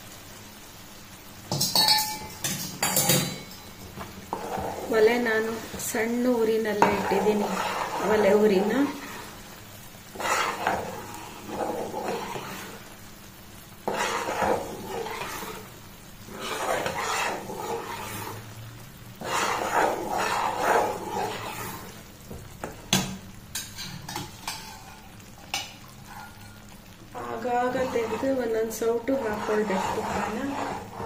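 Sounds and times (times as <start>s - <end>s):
mixture bubbling and sizzling: 0.0s - 31.0s
ladle tapping on a pan: 1.5s - 3.6s
ladle scraping a pan: 1.5s - 13.0s, 13.8s - 18.6s, 19.2s - 31.0s.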